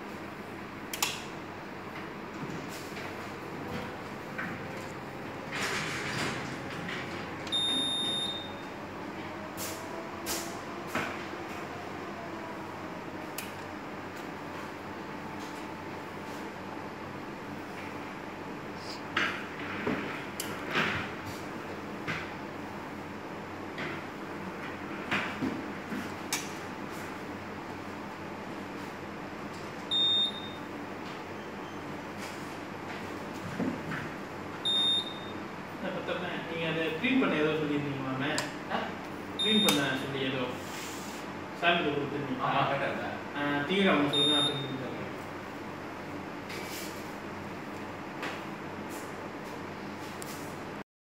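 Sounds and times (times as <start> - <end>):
electrical hum: 0.0 - 50.8
high-pitched electronic beep: 7.6 - 8.6.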